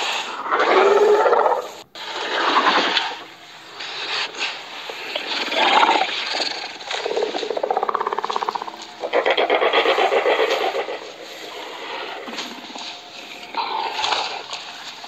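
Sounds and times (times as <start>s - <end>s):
creature growling rattling: 5.2s - 12.7s.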